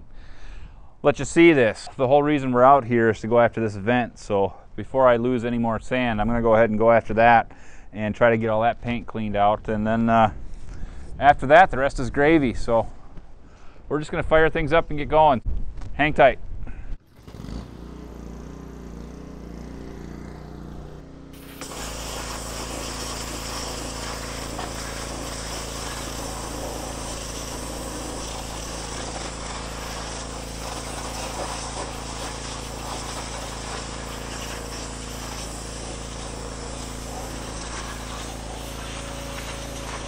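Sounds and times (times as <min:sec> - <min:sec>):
pressure washer humming: 0:17.0 - 0:40.0
water and sand spraying on metal: 0:21.4 - 0:40.0.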